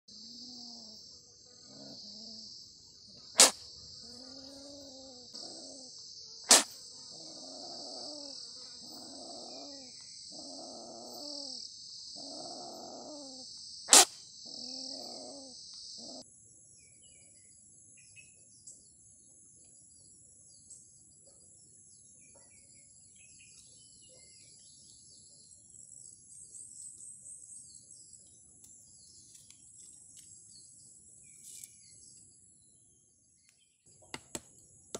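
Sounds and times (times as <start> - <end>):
civet growling call: 0.1 - 2.6, 3.2 - 16.3
high insect buzz: 0.1 - 18.2
faint insects and chirps: 0.1 - 34.9.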